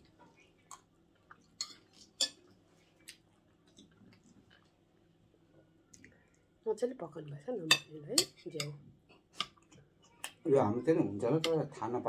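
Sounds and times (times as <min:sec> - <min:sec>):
spoons clinking on plates: 0:01.6 - 0:02.4, 0:07.6 - 0:08.8.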